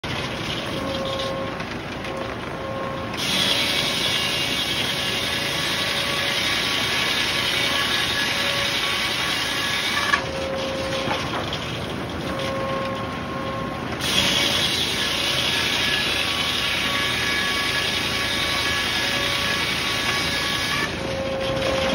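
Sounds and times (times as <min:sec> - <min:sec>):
circular saw blade cutting wood: 0:03.2 - 0:11.2, 0:14.0 - 0:21.9.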